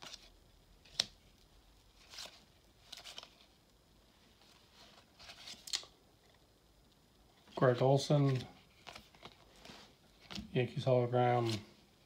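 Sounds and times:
cards sliding and flicking: 0.0s - 1.2s, 2.0s - 3.5s, 4.8s - 6.0s, 8.2s - 10.5s, 11.3s - 11.7s.

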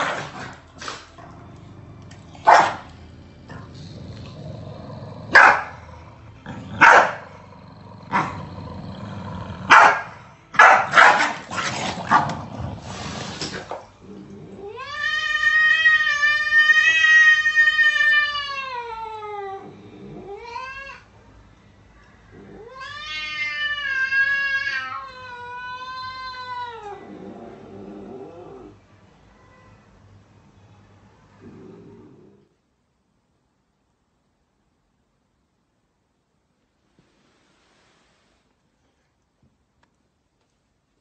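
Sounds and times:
dog barking: 2.4s - 2.9s, 5.3s - 5.8s, 6.8s - 7.3s, 9.7s - 11.5s
cat yowling: 14.6s - 21.1s, 22.4s - 27.2s.

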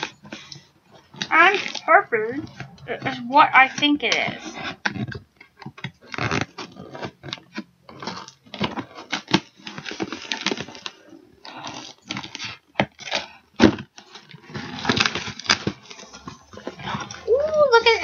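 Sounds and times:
cardboard rustling and scraping: 0.0s - 18.0s.

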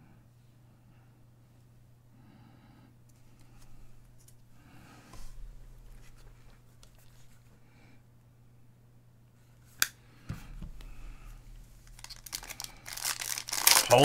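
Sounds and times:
faint electrical hum: 0.0s - 14.0s
trading cards shuffling: 11.8s - 14.0s.

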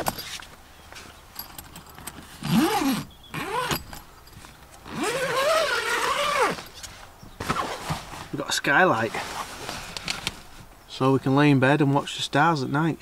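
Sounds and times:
zip being worked: 2.3s - 4.0s, 4.8s - 8.1s
tent fabric rustling: 4.4s - 10.7s
light clicks and scrapes: 9.0s - 10.8s.

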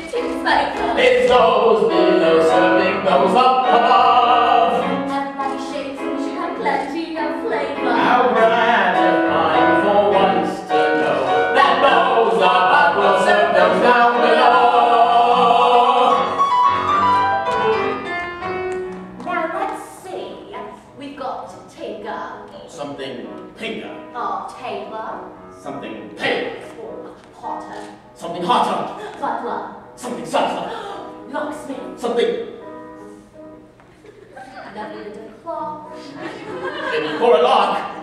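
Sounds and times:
instrumental accompaniment: 0.0s - 20.9s
person singing: 0.1s - 5.6s.

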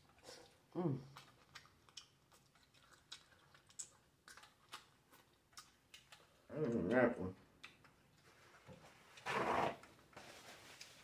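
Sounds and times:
mouth chewing wet clicks: 0.0s - 8.1s.

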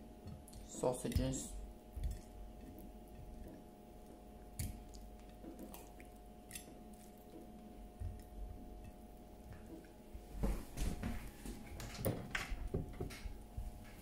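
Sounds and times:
faint steady hum: 0.0s - 14.0s
wet squishes of raw meat: 2.0s - 8.4s.

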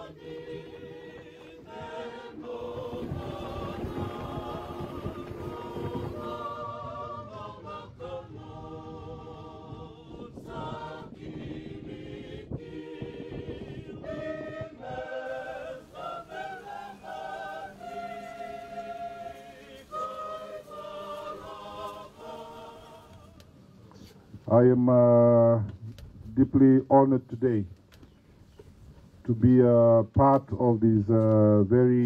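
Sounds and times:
choir singing in harmony: 0.0s - 23.7s.

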